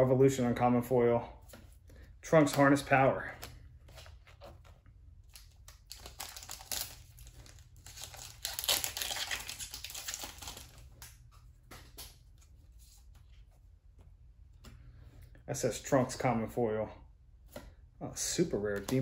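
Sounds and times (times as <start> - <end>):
cards rustling and clicking: 1.4 - 15.2, 18.6 - 19.0
foil wrapper crinkling and tearing: 5.3 - 11.0.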